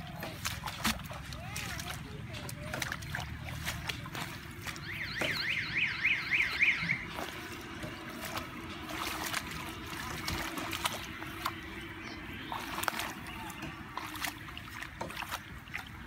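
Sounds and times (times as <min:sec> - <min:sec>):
hands splashing in muddy water: 0:00.0 - 0:16.0
water drips: 0:00.0 - 0:16.0
high warbling tone: 0:04.8 - 0:07.9.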